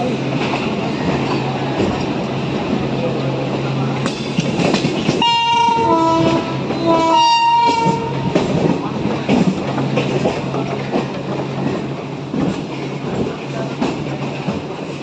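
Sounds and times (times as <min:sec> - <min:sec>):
train running noise: 0:00.0 - 0:15.0
train wheel clatter: 0:00.0 - 0:15.0
train horn blasts: 0:05.2 - 0:08.3.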